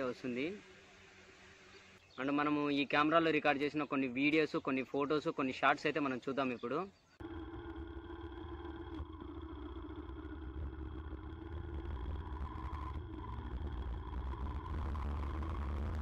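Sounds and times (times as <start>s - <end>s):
motorcycle engine running: 7.2s - 16.0s.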